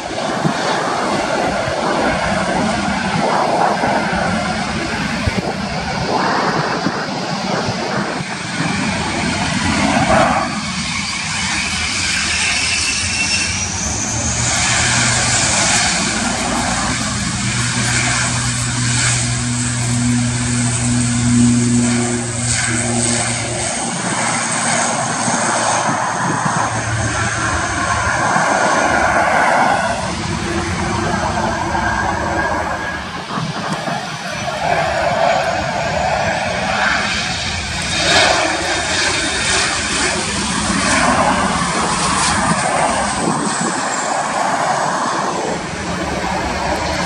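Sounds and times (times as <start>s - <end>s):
jet engines rushing: 0.0s - 47.0s
turboprop propeller hum: 0.0s - 47.0s.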